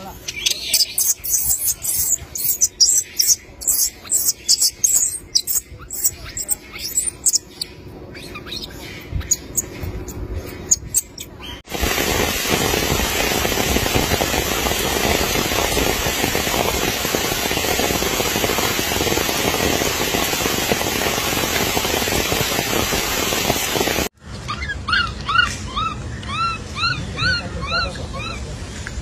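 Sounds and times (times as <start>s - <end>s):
rain hissing: 0.3s - 7.4s, 11.6s - 24.1s
baby monkey squealing: 0.3s - 11.6s, 24.5s - 28.4s.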